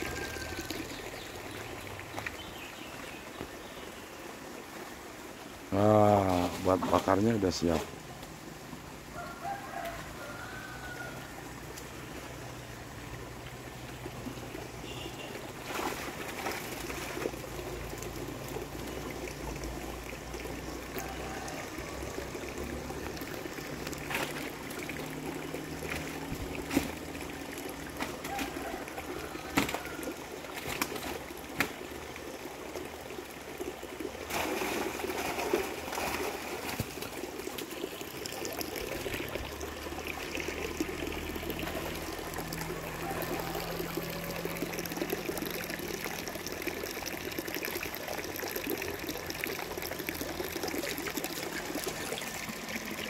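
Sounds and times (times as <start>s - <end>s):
water trickling: 0.0s - 53.0s
sharp knocks or splashes: 23.9s - 27.2s, 29.5s - 30.0s.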